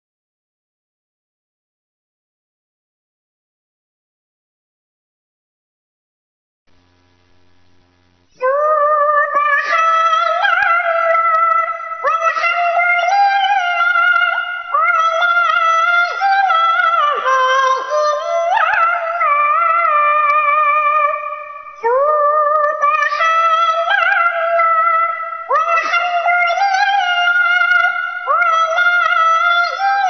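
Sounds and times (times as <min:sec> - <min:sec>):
faint hum: 0:06.7 - 0:30.0
high pitch-shifted singing voice: 0:08.3 - 0:30.0.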